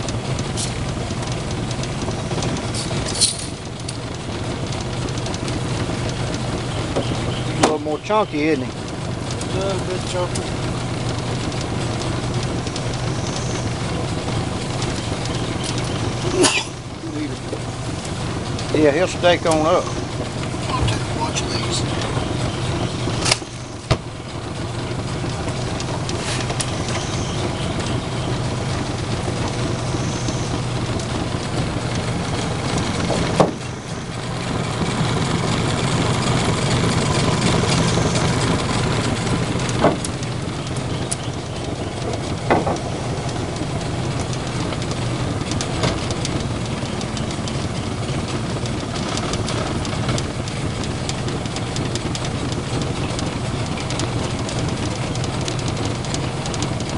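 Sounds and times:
outboard motor droning: 0.0 - 56.9
sharp knocks: 42.4 - 42.8.

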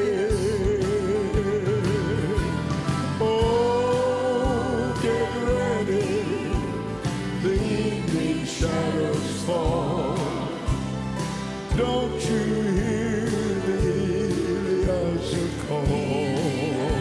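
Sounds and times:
gospel singers: 0.0 - 17.0
low drum beat: 0.0 - 17.0
piano and bass: 0.0 - 17.0.

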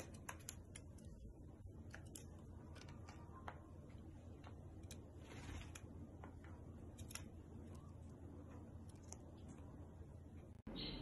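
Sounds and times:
bird beak and claws tapping: 0.0 - 7.8
low steady hum: 0.0 - 11.0.

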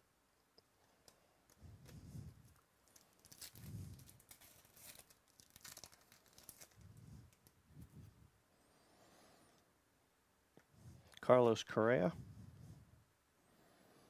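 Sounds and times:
foil wrapper crinkling and tearing: 2.8 - 7.6.

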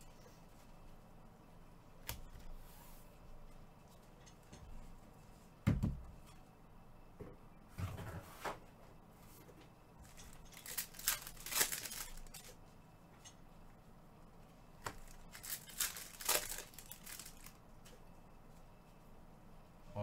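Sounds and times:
card pack wrappers tearing: 10.0 - 12.5, 14.9 - 17.6.

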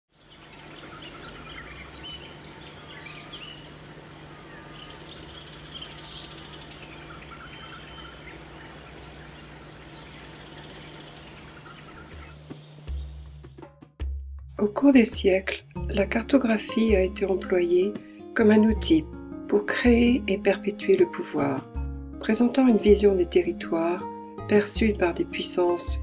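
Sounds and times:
birds chirping and calling: 0.2 - 13.3
steady background hiss: 0.2 - 13.4
low hum: 0.6 - 13.6.

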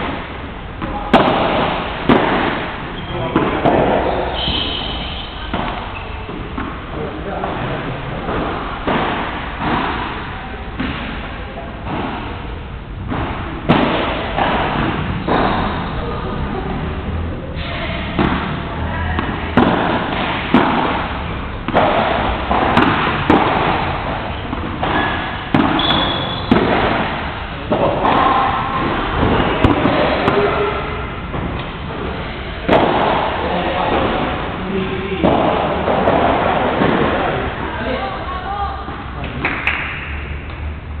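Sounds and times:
padel ball hit by paddles: 0.0 - 7.6, 8.2 - 15.9, 18.1 - 31.8, 32.6 - 37.8
ball bouncing on court: 0.0 - 11.2, 13.0 - 15.9, 18.1 - 31.8.

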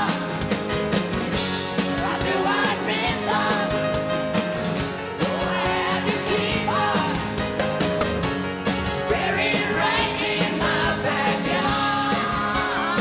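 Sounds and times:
live rock band playing: 0.0 - 13.0
person singing: 11.3 - 13.0.

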